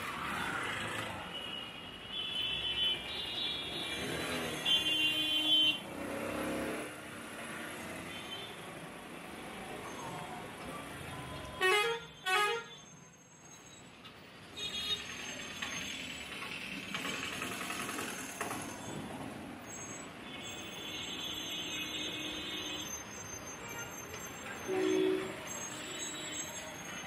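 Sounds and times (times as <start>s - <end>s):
street traffic noise: 0.0s - 27.0s
vehicle horn toots: 24.7s - 25.4s.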